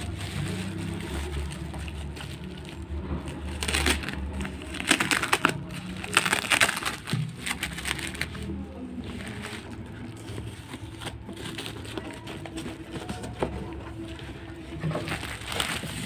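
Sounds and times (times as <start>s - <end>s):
bubble wrap crinkling: 0.0s - 16.0s.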